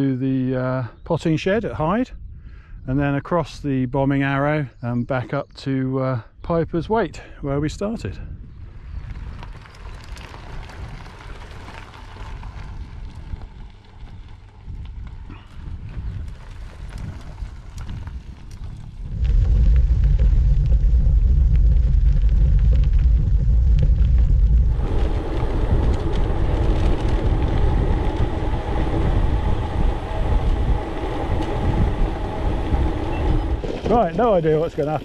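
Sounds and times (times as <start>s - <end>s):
wind on microphone: 2.1s - 3.2s, 7.5s - 35.0s
tyres rumbling on gravel: 7.8s - 35.0s.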